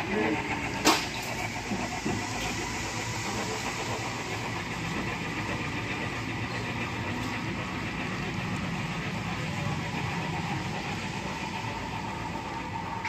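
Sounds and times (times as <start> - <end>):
model train rumbling on track: 0.0 - 13.0.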